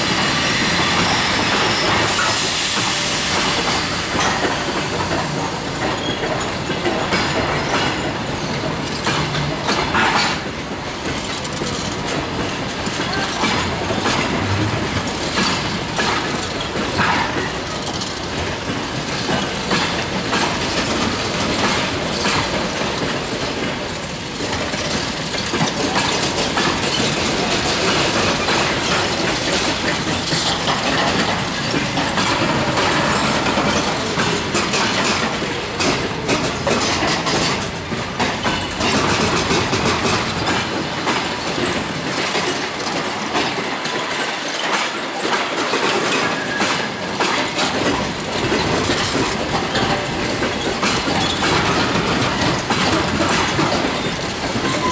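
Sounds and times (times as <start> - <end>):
train wheels clattering over rail joints: 0.0 - 54.9.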